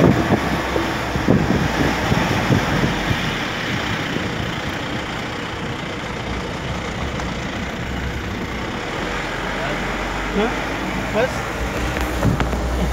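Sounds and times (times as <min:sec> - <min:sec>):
wind buffeting microphone: 0:00.0 - 0:05.0, 0:10.8 - 0:12.9
road vehicle rumble and rush: 0:00.0 - 0:12.9.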